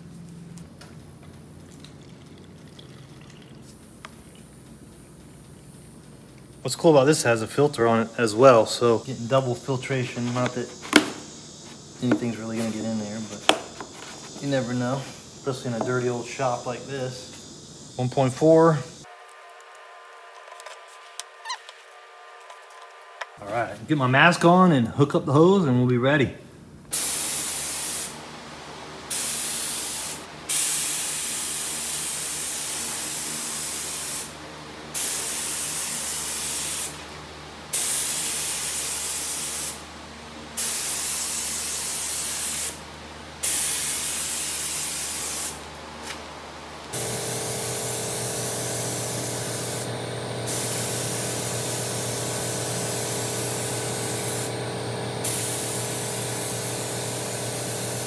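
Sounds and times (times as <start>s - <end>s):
paint spray gun hissing: 7.8s - 19.1s, 26.9s - 28.2s, 29.1s - 37.1s, 37.7s - 39.9s, 40.6s - 46.2s, 46.9s - 58.0s
steady low hum: 42.7s - 58.0s.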